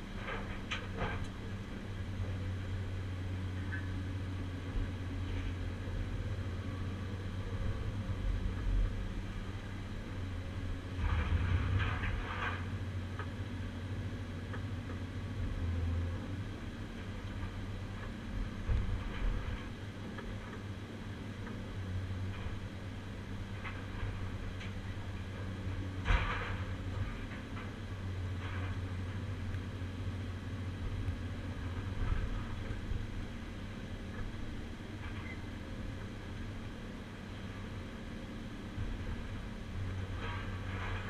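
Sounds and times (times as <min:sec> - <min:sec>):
excavator diesel engine running: 0:00.0 - 0:41.0
scrap steel clanking and scraping: 0:00.1 - 0:01.6, 0:10.8 - 0:12.9, 0:23.5 - 0:29.4, 0:39.8 - 0:41.0.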